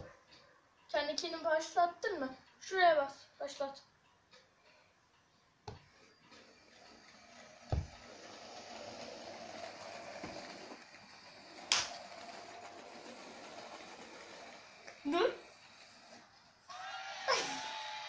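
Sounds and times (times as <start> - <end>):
small electric motors whirring: 6.0 - 18.0
low thump: 7.7 - 8.0.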